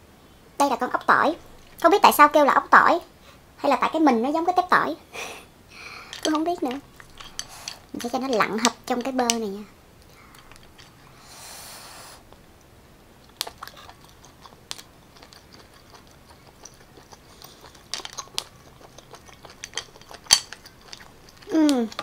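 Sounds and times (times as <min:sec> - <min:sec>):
soft chewing: 0:00.9 - 0:02.0, 0:05.7 - 0:11.2, 0:12.2 - 0:22.0.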